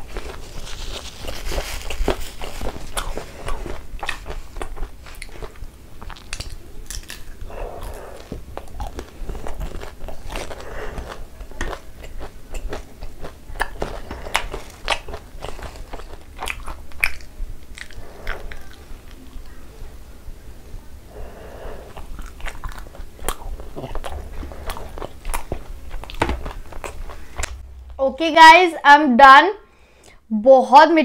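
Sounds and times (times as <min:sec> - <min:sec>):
person biting and chewing: 0:00.0 - 0:19.6, 0:21.3 - 0:27.7
wet mouth clicks and smacks: 0:16.4 - 0:19.6.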